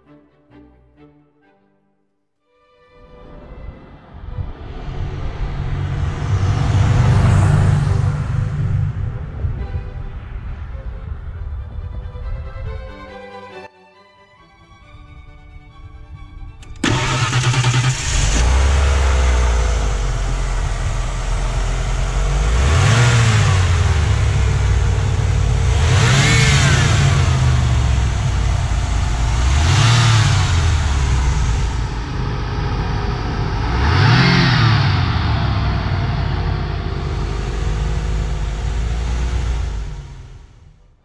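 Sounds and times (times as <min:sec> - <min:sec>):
engine revving and idling: 0:04.4 - 0:09.7, 0:16.6 - 0:40.8.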